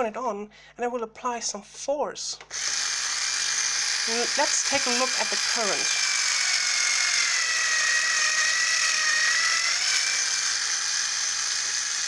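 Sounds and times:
electric screwdriver motor whining: 2.5 - 12.0.

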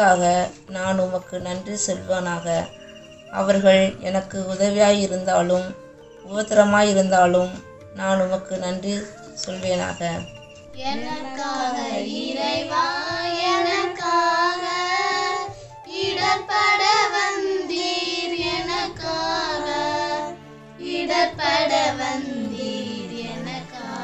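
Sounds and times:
instrumental accompaniment: 0.0 - 24.0
high voice singing a hymn: 10.8 - 24.0.

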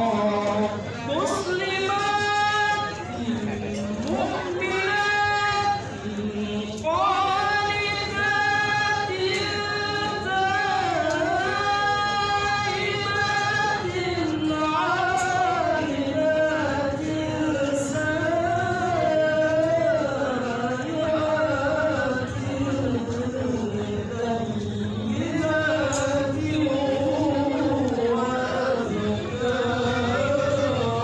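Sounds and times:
man reciting melodically: 0.0 - 31.0.

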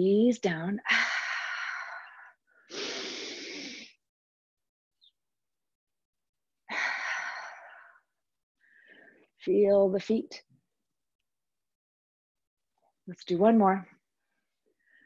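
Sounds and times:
woman breathing deeply: 0.9 - 4.0.

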